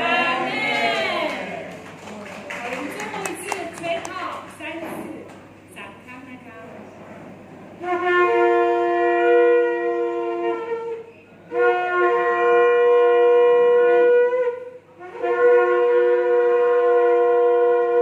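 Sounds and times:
ram's horns blowing: 7.8s - 18.0s.

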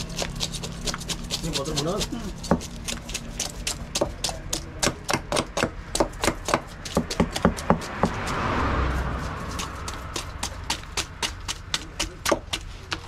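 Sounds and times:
knife scraping fish scales: 0.0s - 4.7s, 6.2s - 13.0s
rushing noise: 7.7s - 11.7s.

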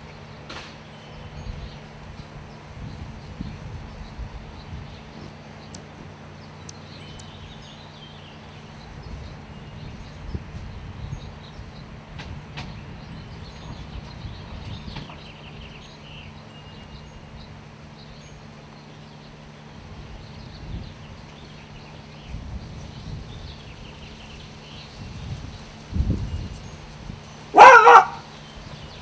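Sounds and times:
low mechanical hum: 0.0s - 29.0s.

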